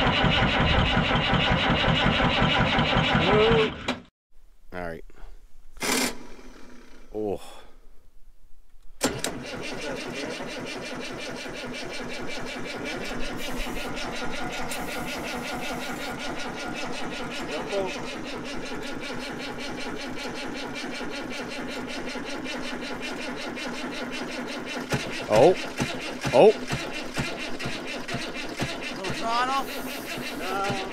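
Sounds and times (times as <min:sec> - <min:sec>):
diesel engine cranking: 0:00.0 - 0:04.1, 0:05.8 - 0:07.4, 0:08.9 - 0:30.9
starter click: 0:24.9 - 0:29.2.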